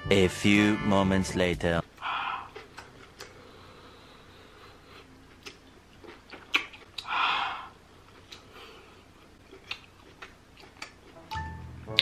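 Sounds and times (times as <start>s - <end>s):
wet lip smacks and clicks: 2.5s - 3.4s, 5.3s - 7.1s, 9.5s - 11.1s.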